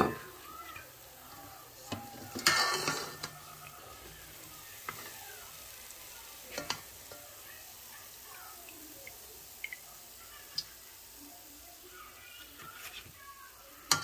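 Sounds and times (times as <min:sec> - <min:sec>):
dough sizzling in frying oil: 0:00.0 - 0:14.0
spoon scooping through oil: 0:00.1 - 0:11.1.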